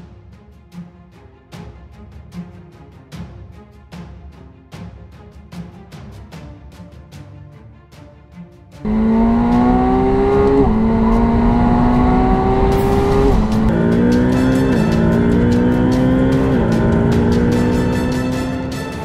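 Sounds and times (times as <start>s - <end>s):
car engine accelerating: 8.8s - 19.0s.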